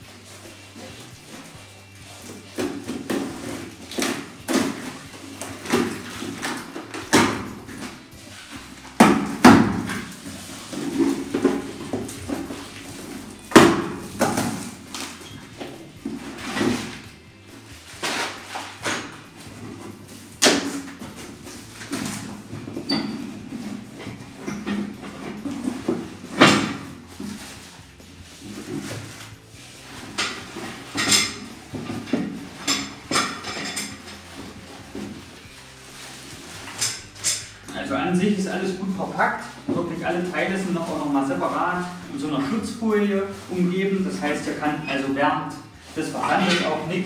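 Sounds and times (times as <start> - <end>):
cardboard box flaps scraping: 17.8 - 20.2
metal parts clinking: 30.2 - 34.3, 36.7 - 37.7.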